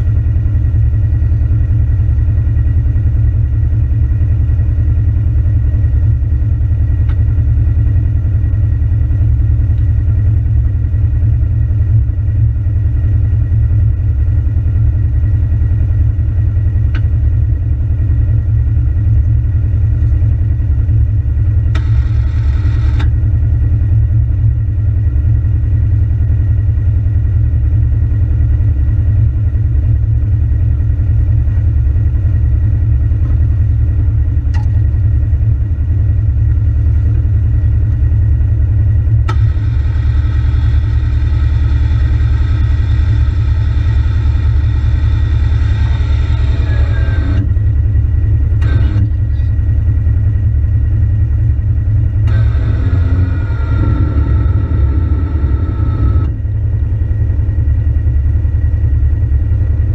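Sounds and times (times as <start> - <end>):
utv engine rumbling: 0.0 - 59.9
whine with sliding pitch: 39.3 - 47.6, 48.6 - 49.6, 52.3 - 56.4.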